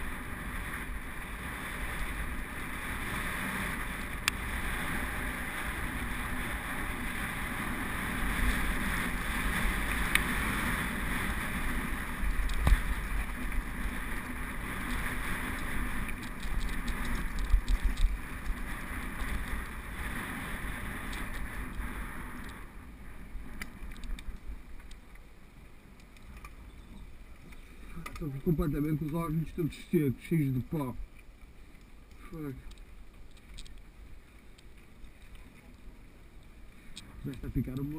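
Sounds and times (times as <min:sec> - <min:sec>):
tyres on gravel: 0:00.0 - 0:22.6
wind rush on microphone: 0:00.0 - 0:25.0
bike rattling and knocking: 0:08.8 - 0:22.0.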